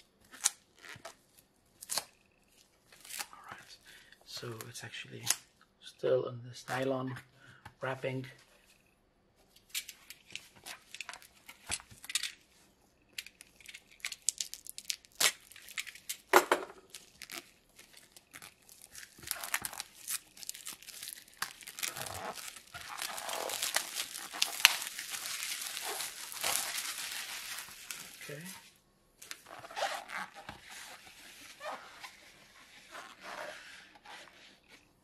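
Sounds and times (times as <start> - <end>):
plastic wrap crinkling: 13.2 - 32.2
utility knife slitting shrink-wrap: 17.0 - 28.4.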